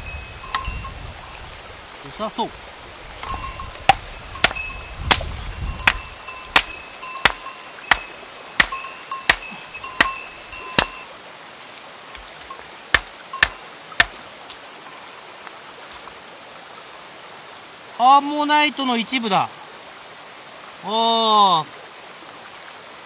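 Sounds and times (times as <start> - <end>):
hammer striking stone: 3.2 - 11.0, 12.5 - 14.2.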